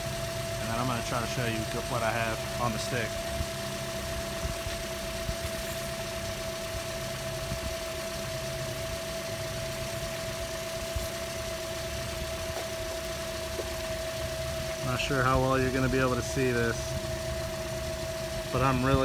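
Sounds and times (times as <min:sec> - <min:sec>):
car engine idling: 0:00.0 - 0:19.0.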